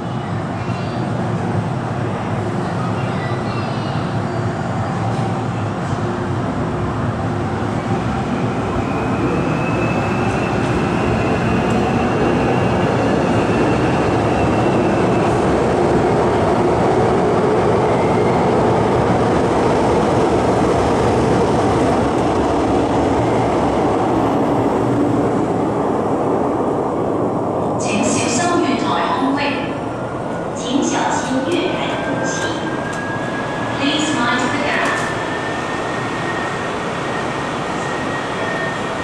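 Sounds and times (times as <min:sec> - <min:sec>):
metro train rumble: 0:00.0 - 0:39.0.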